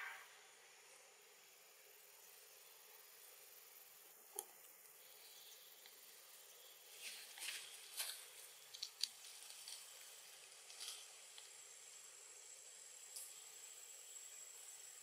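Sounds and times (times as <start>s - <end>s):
faint steady hiss: 0.0s - 15.0s
soft scratchy rustles: 6.9s - 10.0s.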